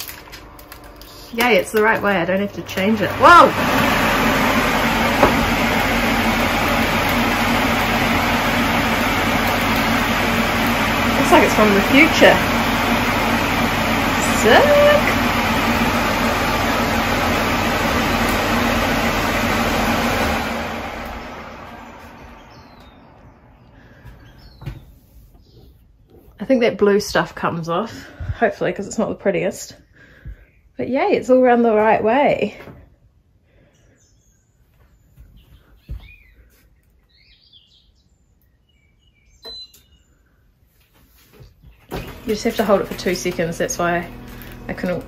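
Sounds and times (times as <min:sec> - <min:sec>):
extractor fan humming: 0:00.0 - 0:25.5, 0:41.2 - 0:45.0
faint bird chirps: 0:33.7 - 0:40.4.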